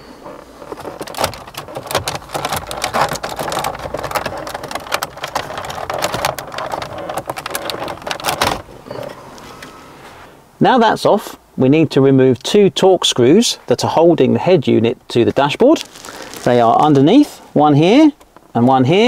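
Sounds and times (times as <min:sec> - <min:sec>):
plastic trim creaking and cracking: 0:00.4 - 0:09.7.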